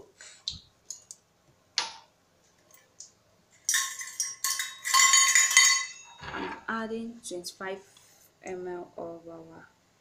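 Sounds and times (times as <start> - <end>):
utensils clattering on containers: 3.6 - 6.3
bottles clicking and clinking: 3.7 - 6.6.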